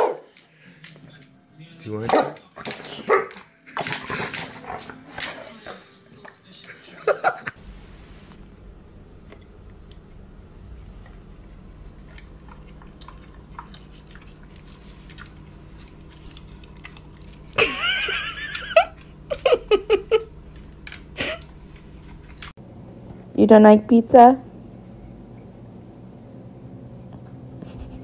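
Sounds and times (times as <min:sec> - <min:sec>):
dog chewing leaf: 0:09.1 - 0:18.1, 0:20.4 - 0:22.6.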